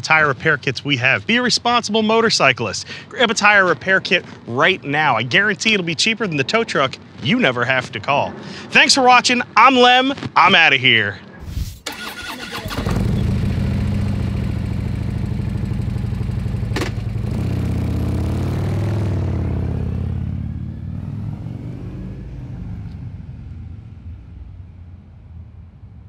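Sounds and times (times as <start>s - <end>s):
motorcycle engine revving: 12.0s - 23.6s
sharp clunk: 16.7s - 17.1s.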